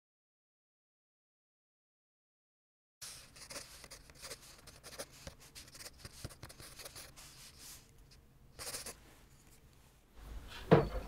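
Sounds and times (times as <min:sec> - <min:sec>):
pencil scratching on paper: 0:03.0 - 0:07.9, 0:08.6 - 0:09.0.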